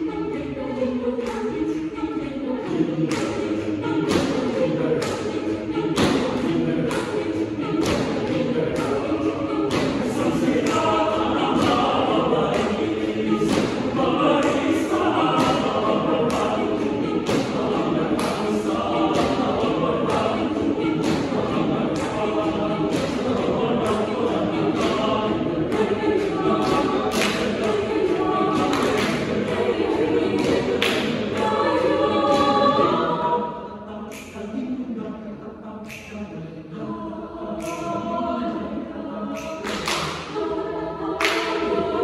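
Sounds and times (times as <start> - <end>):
choir singing a cappella: 0.0 - 42.0
body percussion hits: 9.6 - 24.0.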